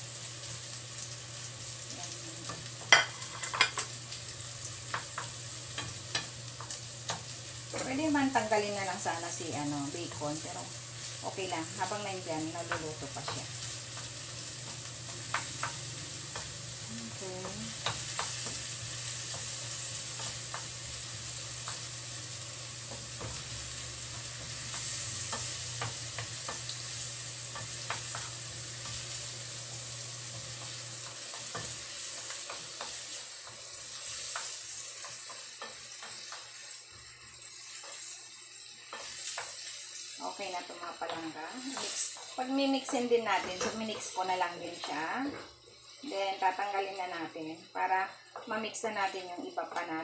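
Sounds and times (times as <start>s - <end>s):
food sizzling in a frying pan: 0.0s - 50.0s
wooden spoon scraping a pan: 40.6s - 45.5s.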